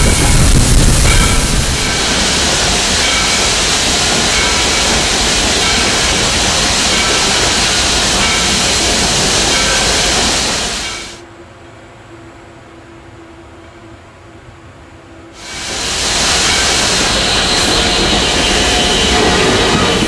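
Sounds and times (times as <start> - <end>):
steam locomotive rushing noise: 0.0 - 11.2, 15.4 - 20.0.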